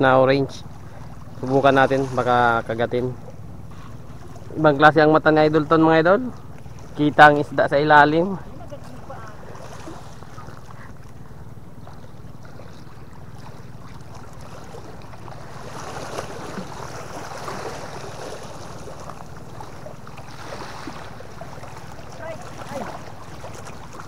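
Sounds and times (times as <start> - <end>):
waves lapping against rocks: 0.8 - 24.0.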